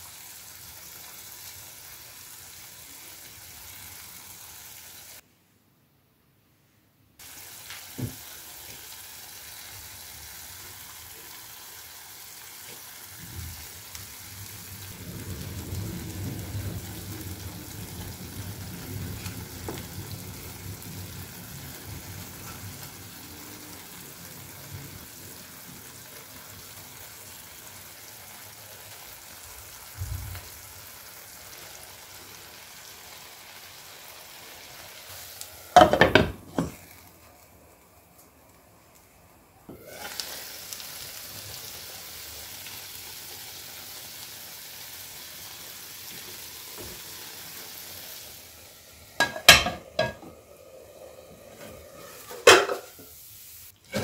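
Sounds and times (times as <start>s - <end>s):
food sizzling in a pan: 0.0s - 5.2s, 7.2s - 54.0s
glass lid clattering onto pan: 35.8s - 36.8s, 49.2s - 50.3s, 52.3s - 53.0s.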